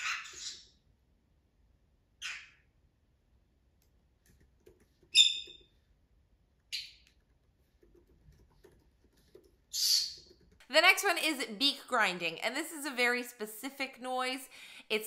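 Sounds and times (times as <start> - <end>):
parrot chirping calls: 0.0 - 0.8, 2.2 - 2.7, 5.1 - 5.6, 9.7 - 10.2.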